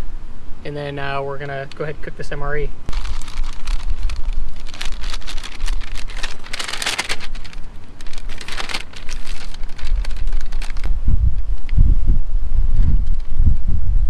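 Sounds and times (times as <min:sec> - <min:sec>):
plastic packaging crinkling: 0:02.9 - 0:10.9.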